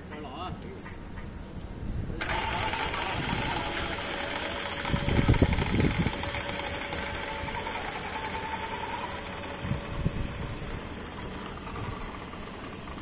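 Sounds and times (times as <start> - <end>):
hoist motor whine and hum: 1.2 - 13.0.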